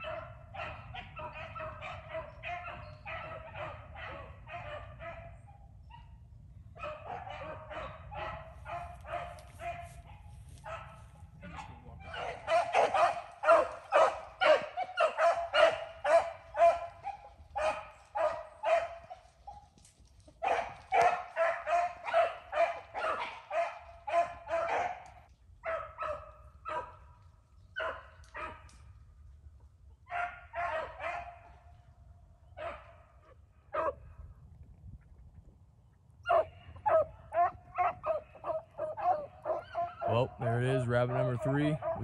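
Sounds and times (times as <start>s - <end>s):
pack of dogs baying: 0.0s - 5.4s, 6.8s - 11.1s, 12.0s - 19.8s, 20.4s - 27.0s, 30.1s - 31.6s, 36.3s - 42.0s.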